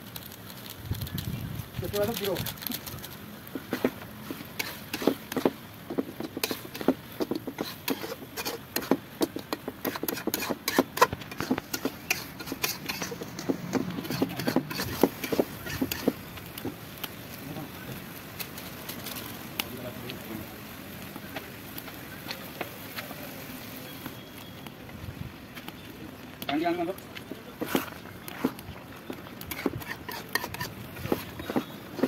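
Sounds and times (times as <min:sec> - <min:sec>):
metal spatula scraping iron pan: 0:06.2 - 0:16.2, 0:29.5 - 0:31.7.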